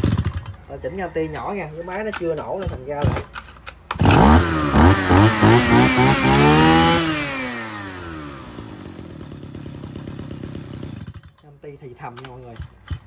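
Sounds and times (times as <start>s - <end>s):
brush cutter engine revving and idling: 0.0s - 0.6s, 3.9s - 11.6s.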